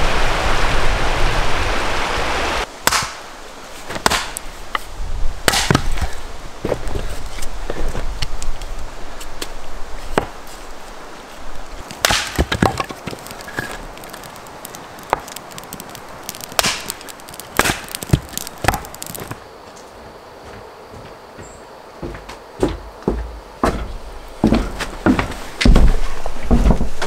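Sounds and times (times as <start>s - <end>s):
hatchet chopping wood: 2.8s - 3.2s, 3.9s - 4.4s, 5.4s - 6.1s, 12.0s - 13.6s, 15.1s - 19.2s.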